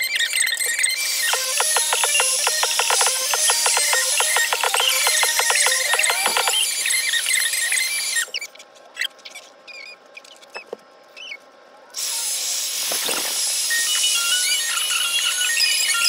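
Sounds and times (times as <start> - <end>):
music: 1.3 - 6.6.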